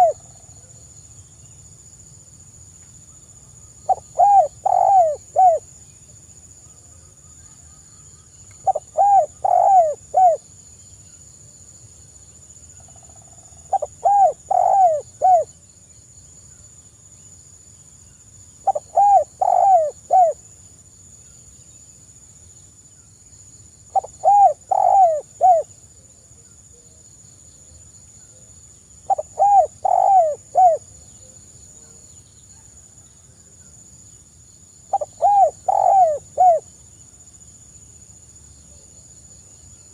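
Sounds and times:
dove cooing: 0.0 - 0.3, 3.9 - 5.6, 8.6 - 10.4, 13.7 - 15.5, 18.6 - 20.4, 24.0 - 25.7, 29.1 - 30.9, 34.9 - 36.6.

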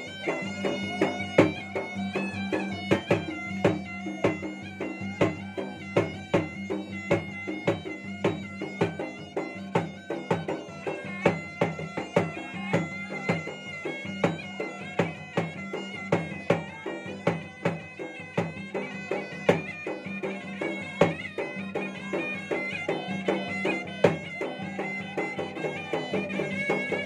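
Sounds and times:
wind instrument sustained melody: 0.0 - 27.0.

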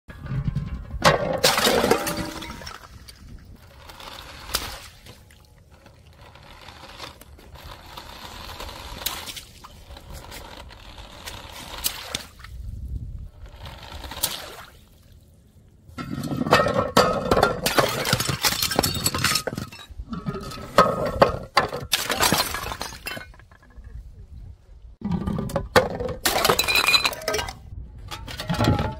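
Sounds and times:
plastic bottles cracking and shattering: 1.1 - 3.0, 16.3 - 23.6, 25.0 - 27.6.

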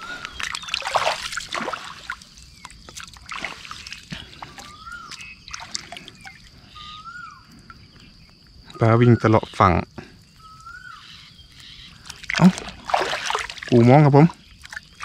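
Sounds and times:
water splashing and dripping: 0.0 - 6.7, 11.5 - 15.0
high insect drone: 0.0 - 15.0
bird call: 4.1 - 9.6, 10.3 - 12.5.

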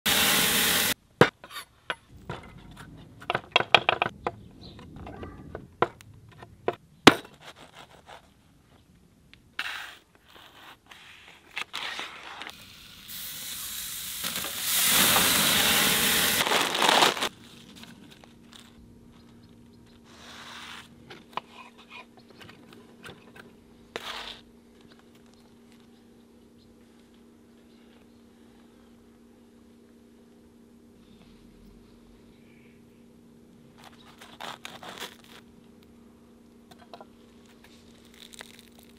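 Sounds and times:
burger patty sizzling on grill: 0.0 - 1.0, 12.6 - 17.3
faint steady hum: 0.9 - 38.9.

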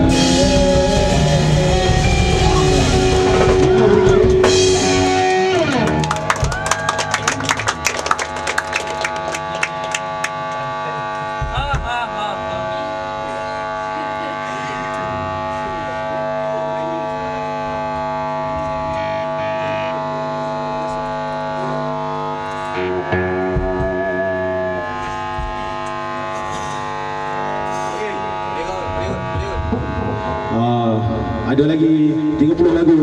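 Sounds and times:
rock song: 0.0 - 6.8, 22.8 - 28.5
drum hits: 0.0 - 6.9, 11.2 - 12.7, 22.8 - 27.0, 27.6 - 31.6
amplifier feedback and hum: 0.0 - 33.0.

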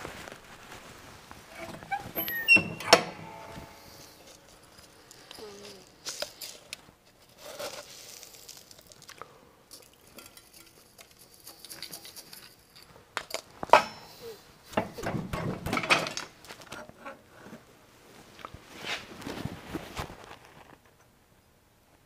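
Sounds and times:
plastic pellets rattling: 7.3 - 12.6.

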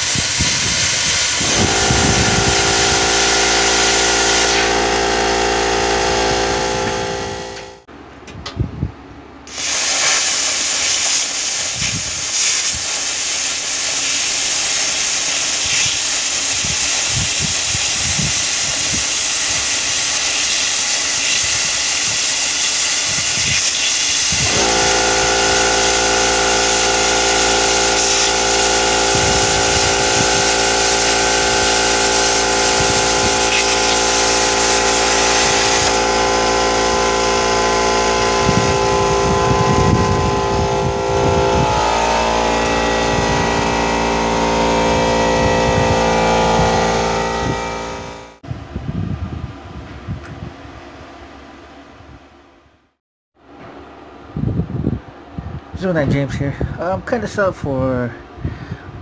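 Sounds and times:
plasma cutter hissing: 0.0 - 7.7, 9.5 - 48.2
machine hum with several tones: 0.0 - 9.9, 14.1 - 52.8.

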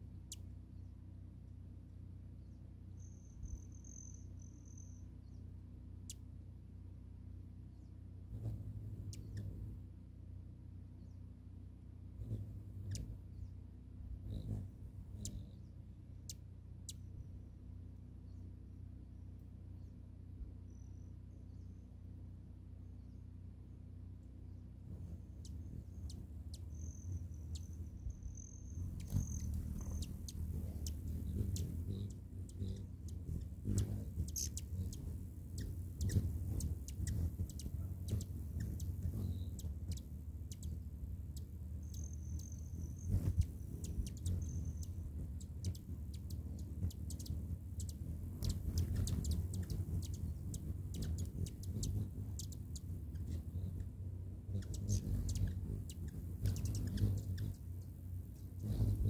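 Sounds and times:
hummingbird wingbeats humming: 0.0 - 21.0, 21.6 - 59.0
hummingbird chip calls: 3.0 - 5.1, 8.3 - 9.8, 12.2 - 13.5, 14.2 - 17.0, 24.9 - 59.0.

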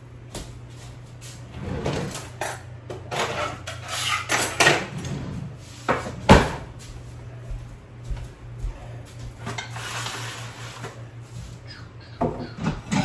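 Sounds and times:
dishes clattering: 12.1 - 13.0.

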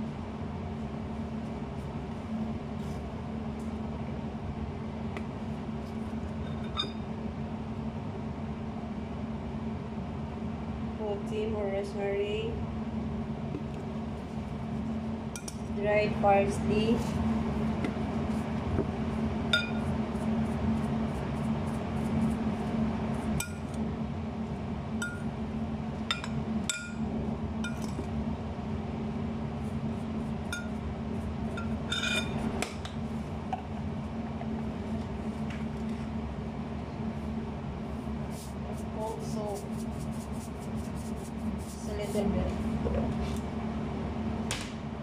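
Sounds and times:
steady low hum: 0.0 - 45.0
glass bowl clinking: 6.5 - 7.0, 19.5 - 19.8.

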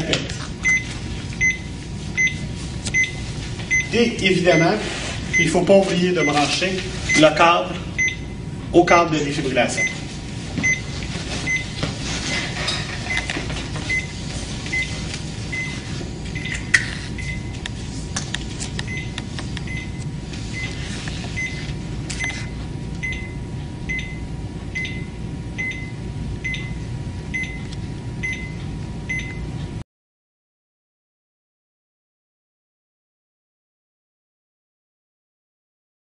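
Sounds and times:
steady hum: 0.0 - 29.8
heart monitor beeping: 0.6 - 4.0, 5.3 - 8.4, 9.8 - 11.9, 13.0 - 17.7, 18.8 - 29.8.

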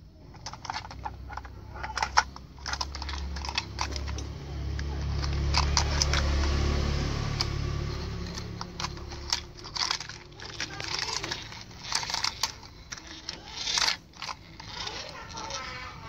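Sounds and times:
low hum: 0.0 - 16.0
clicks and short rattles: 0.2 - 16.0
plastic toy vehicles knocking together: 0.3 - 16.0.

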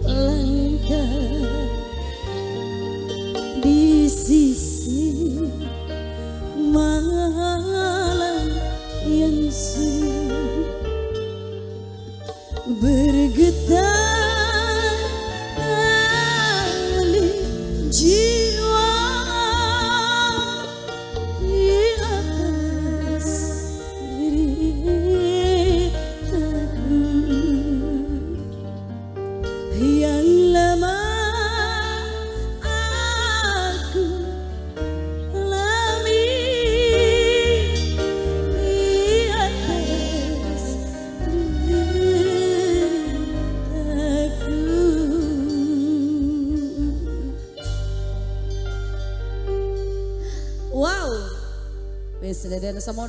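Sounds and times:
live band with bass: 0.0 - 53.0
woman singing with vibrato: 3.6 - 5.8, 12.6 - 28.5, 35.3 - 47.6.

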